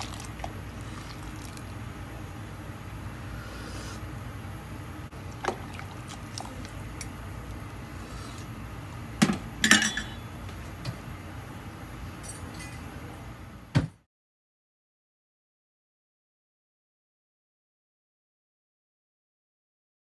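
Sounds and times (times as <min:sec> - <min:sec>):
steady low hum: 0:00.0 - 0:14.0
metal ladle clinking on pot: 0:09.6 - 0:10.2.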